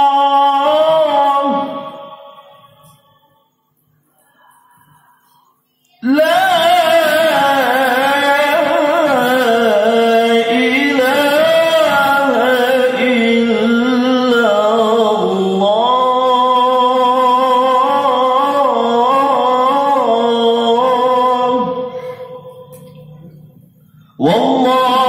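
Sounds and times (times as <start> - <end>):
man reciting melodically: 0.0 - 3.1, 6.0 - 25.0.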